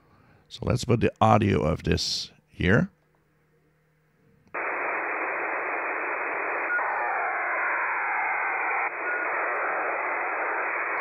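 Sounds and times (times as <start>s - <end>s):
radio receiver hiss: 4.6s - 11.0s.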